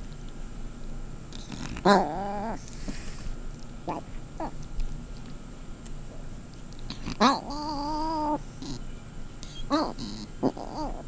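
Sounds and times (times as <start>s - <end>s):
cat chirping: 6.9s - 8.8s
cat wavering call: 7.2s - 8.8s.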